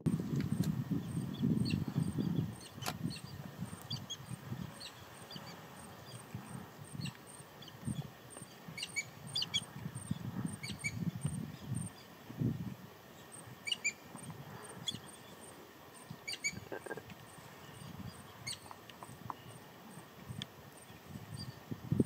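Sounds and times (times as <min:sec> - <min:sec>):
birds chirping: 0:13.2 - 0:20.0.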